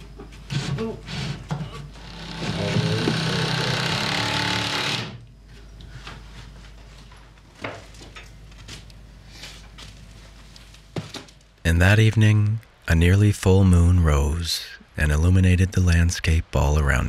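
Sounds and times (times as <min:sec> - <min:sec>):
power tool buzzing: 0:00.5 - 0:05.2.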